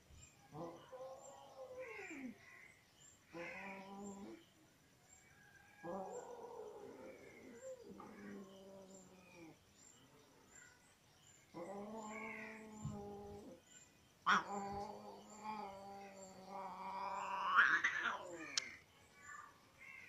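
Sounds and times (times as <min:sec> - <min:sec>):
cat yowling angrily: 0:16.7 - 0:18.4.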